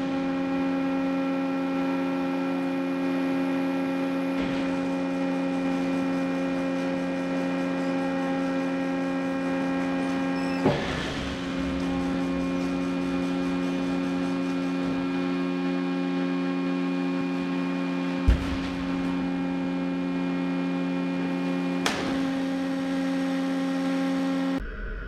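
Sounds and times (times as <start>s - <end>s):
machinery electric hum: 0.0s - 25.0s
machine thump: 4.3s - 7.6s, 10.3s - 12.9s, 18.2s - 19.9s, 21.8s - 22.5s.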